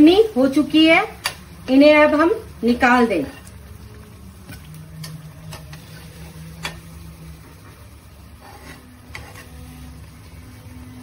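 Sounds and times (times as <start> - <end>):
oil sizzling: 0.0 - 11.0
metal spoon clicking on pan: 1.2 - 1.4, 6.6 - 6.8.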